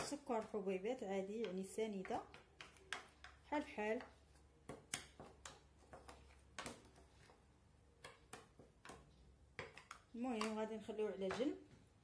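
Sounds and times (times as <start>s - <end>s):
metal spoon stirring dry mix: 0.0s - 12.0s.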